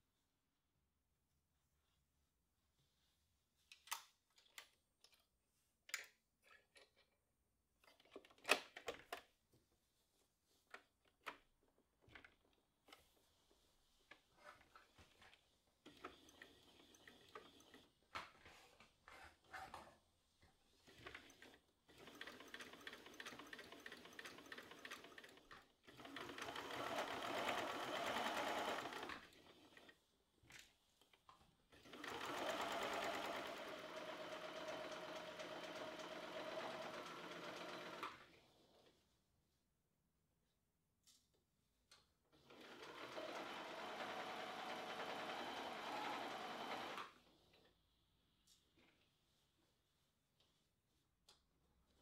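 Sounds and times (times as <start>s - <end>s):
electric sewing machine stitching: 21.0s - 30.0s, 31.8s - 38.3s, 42.4s - 47.2s.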